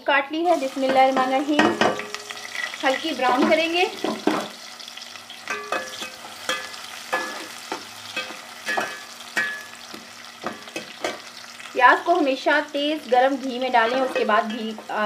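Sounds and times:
onions sizzling in hot fat: 0.1 - 15.0
metal spatula scraping a pot: 13.7 - 14.9.

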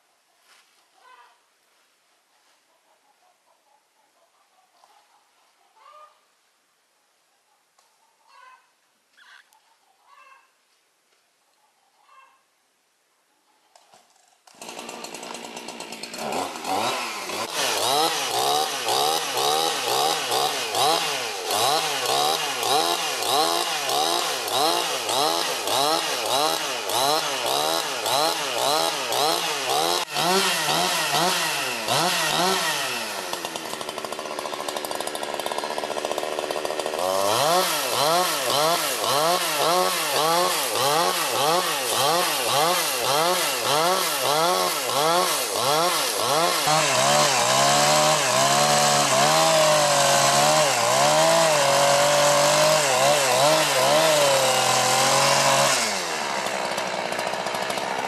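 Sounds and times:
chainsaw cutting log: 14.4 - 58.0.

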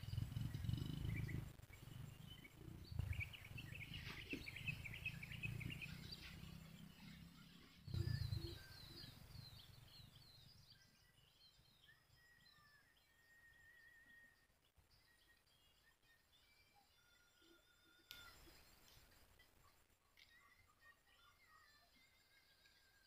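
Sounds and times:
low rumbling noise: 0.0 - 9.0
down-slurred bird calls: 0.0 - 9.2
small birds chirping: 0.0 - 23.0.

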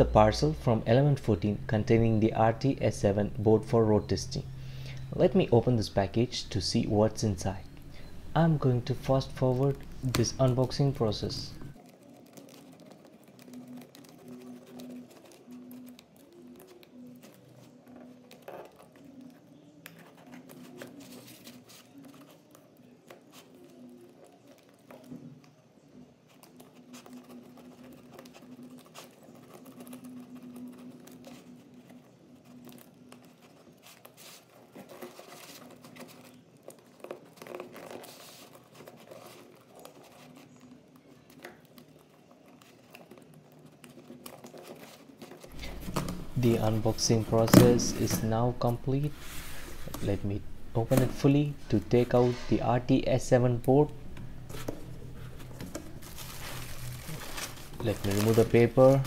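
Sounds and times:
faint steady hum: 0.0 - 11.8, 45.5 - 59.0
plastic wrap crinkling and tearing: 11.7 - 25.1, 53.5 - 59.0.

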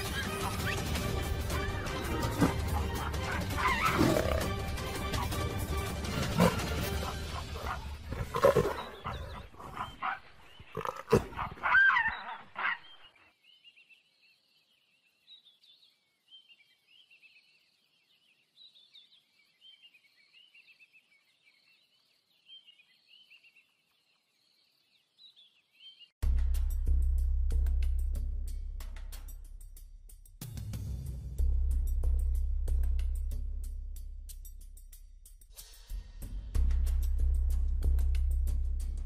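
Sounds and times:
leopard growling and snarling: 0.1 - 12.7
animal squealing: 1.5 - 4.5.

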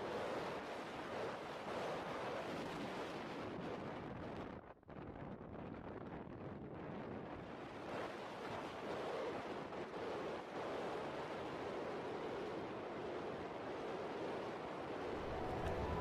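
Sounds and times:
wind rushing over microphone: 5.2 - 16.0.

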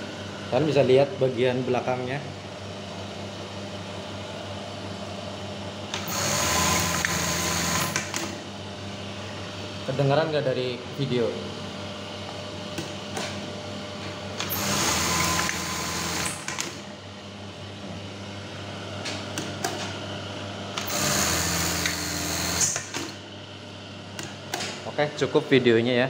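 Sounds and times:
sewing machine motor hum: 5.9 - 8.4, 14.3 - 16.9, 20.7 - 23.2
sewing machine stitching: 6.0 - 8.3, 14.4 - 16.8, 20.8 - 23.1.

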